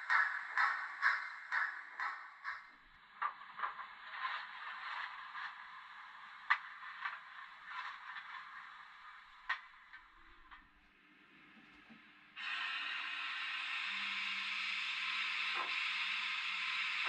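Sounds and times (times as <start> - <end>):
sharp track clicks: 0.0 - 5.4
model train scraping hiss: 12.4 - 17.0.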